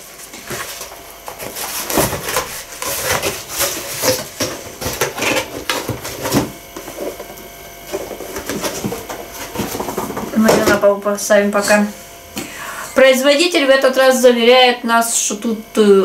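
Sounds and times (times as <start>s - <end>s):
cardboard rustling and scraping: 0.0s - 10.9s.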